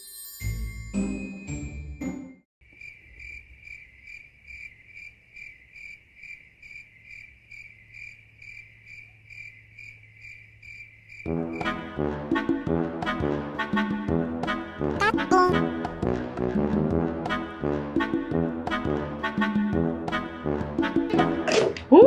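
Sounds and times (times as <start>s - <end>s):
music: 0.0s - 2.5s, 11.3s - 22.0s
cricket chirping sound effect: 2.6s - 11.9s.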